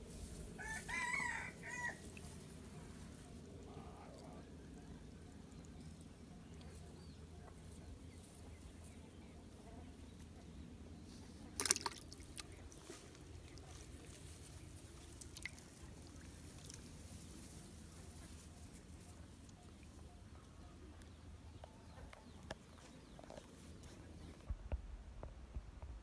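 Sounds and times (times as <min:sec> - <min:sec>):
faint low hum: 0:00.0 - 0:26.0
faint water drips: 0:02.0 - 0:02.4, 0:11.6 - 0:17.2
water splashing in plastic bucket: 0:11.6 - 0:12.5.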